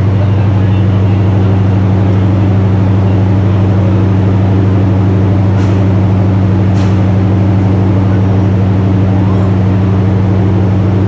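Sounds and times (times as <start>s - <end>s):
diesel train engine drone: 0.0s - 11.0s.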